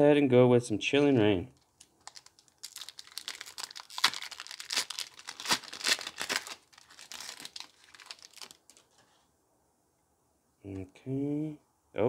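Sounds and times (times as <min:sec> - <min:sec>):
foil wrapper tearing and crinkling: 0:01.8 - 0:08.9.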